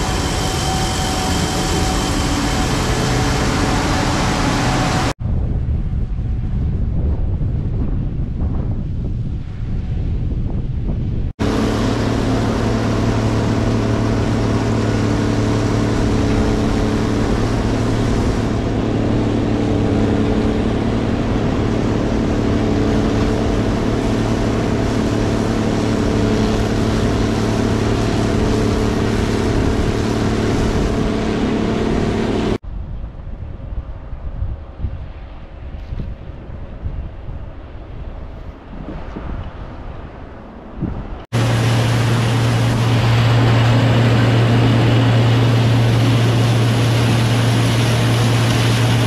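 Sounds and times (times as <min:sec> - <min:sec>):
combine harvester engine drone: 0:00.0 - 0:32.6, 0:40.5 - 0:49.0
wind noise on microphone: 0:00.0 - 0:49.0.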